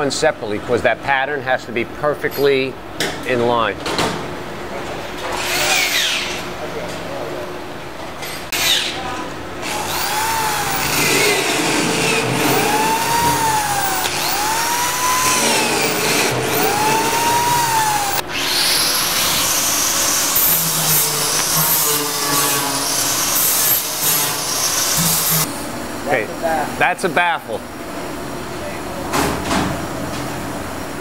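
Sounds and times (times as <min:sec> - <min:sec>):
hiss-like shop noise: 0:05.2 - 0:06.8, 0:08.2 - 0:26.7
electric drill motor whine: 0:09.6 - 0:25.5.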